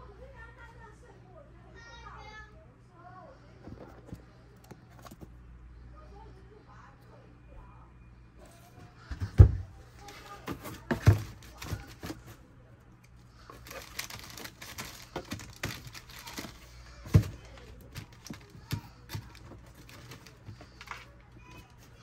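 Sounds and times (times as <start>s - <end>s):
wrapping crinkling: 10.0s - 12.4s, 13.3s - 22.0s
thumps in cardboard box: 10.4s - 12.4s, 15.1s - 20.3s.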